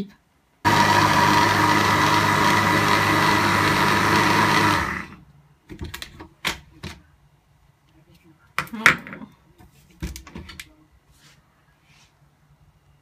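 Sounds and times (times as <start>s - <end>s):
blender running: 0.7s - 5.2s.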